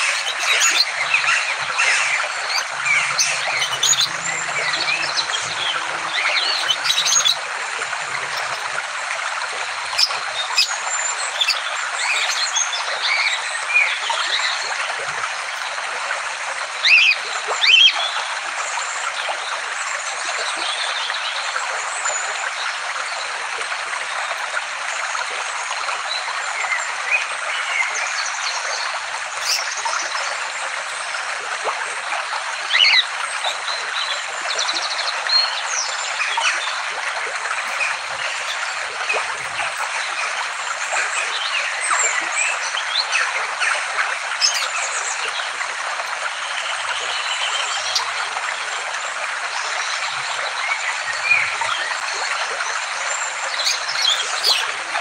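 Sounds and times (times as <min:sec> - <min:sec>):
loud sharp bird calls: 0:00.0 - 0:08.8, 0:09.8 - 0:15.6, 0:37.6 - 0:43.4, 0:44.3 - 0:44.9, 0:53.6 - 0:55.0
small birds chirping and twittering: 0:00.0 - 0:15.9, 0:16.6 - 0:18.2, 0:26.1 - 0:31.2, 0:32.6 - 0:48.6, 0:49.5 - 0:55.0.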